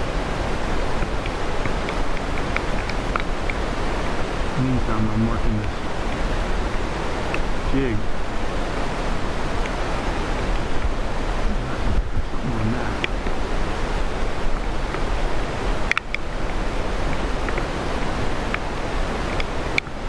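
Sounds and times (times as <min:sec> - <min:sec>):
wind noise on microphone: 0:00.0 - 0:20.0
faint clicks: 0:01.0 - 0:03.6.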